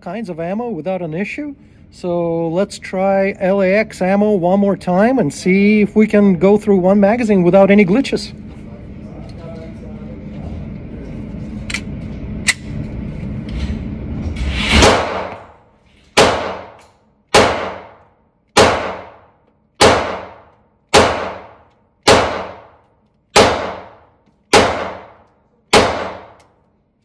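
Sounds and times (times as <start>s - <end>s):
pistol shots ringing indoors: 14.7s - 26.8s.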